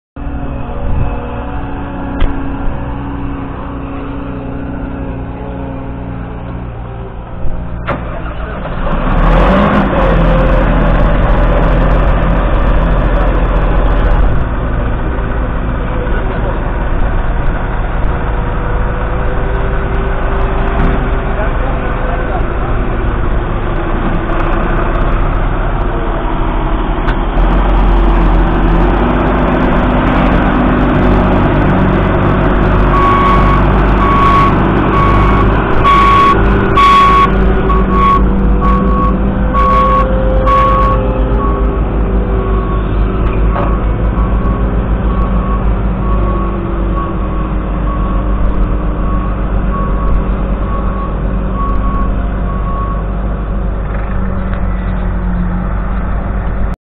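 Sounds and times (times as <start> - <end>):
tractor engine running: 0.2 - 56.8.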